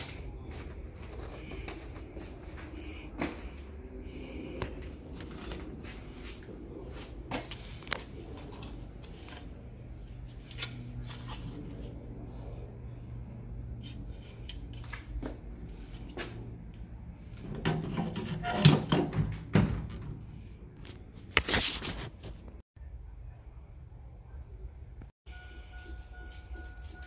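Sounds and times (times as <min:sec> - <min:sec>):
steady low hum: 0:00.0 - 0:17.6.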